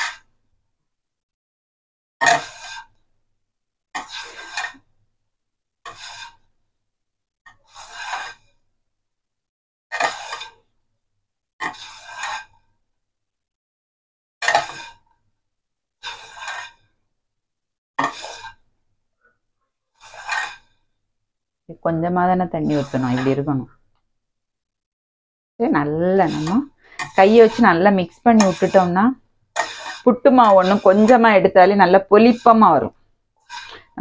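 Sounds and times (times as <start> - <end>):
hand scraping flour in pan: 2.2 - 3.0, 4.0 - 4.8, 5.9 - 6.5, 7.6 - 8.4, 9.9 - 10.6, 11.6 - 12.6, 14.5 - 15.0, 16.0 - 16.7, 18.0 - 18.7, 20.0 - 20.6, 21.8 - 23.7, 25.6 - 34.0.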